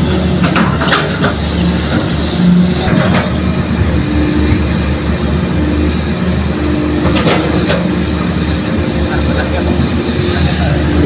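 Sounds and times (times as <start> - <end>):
excavator diesel engine droning: 0.0 - 11.0.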